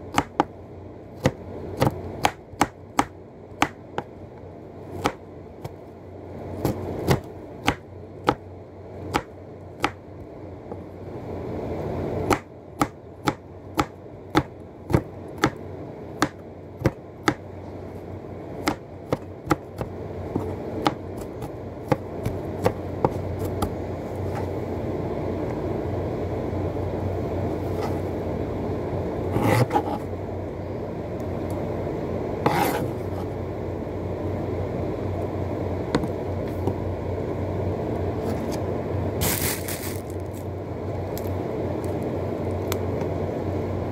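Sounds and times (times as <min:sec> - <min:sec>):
knife chopping on cutting board: 0:01.2 - 0:04.1, 0:29.4 - 0:30.0, 0:32.4 - 0:32.9.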